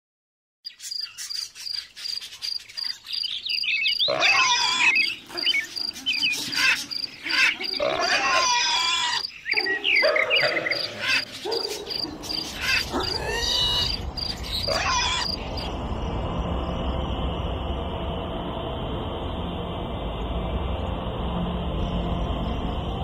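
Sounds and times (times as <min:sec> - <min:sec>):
cricket chirping: 0:00.7 - 0:23.0
animal calls: 0:03.9 - 0:15.7
low steady rumble: 0:15.4 - 0:23.0.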